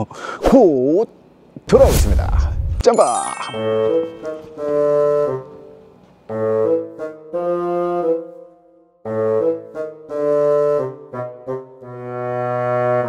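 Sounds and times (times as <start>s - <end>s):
melody of held notes: 3.0s - 8.3s.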